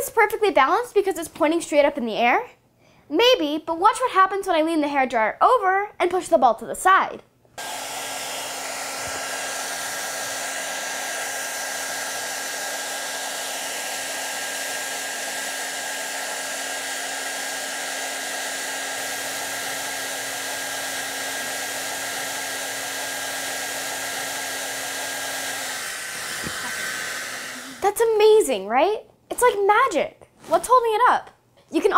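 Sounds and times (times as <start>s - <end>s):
hair dryer running: 7.6s - 28.1s.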